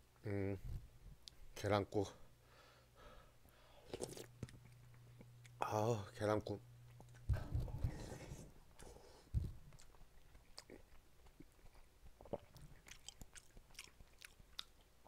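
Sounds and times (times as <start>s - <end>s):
man chewing: 3.7s - 5.6s, 8.7s - 15.0s
soft low thump: 7.3s - 8.0s.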